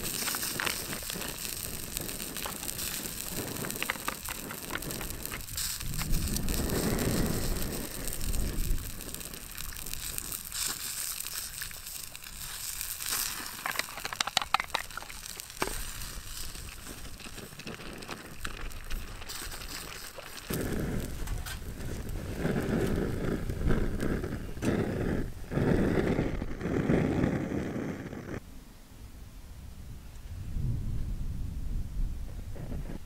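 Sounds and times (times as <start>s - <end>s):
food sizzling in frying pan: 0.0s - 24.3s.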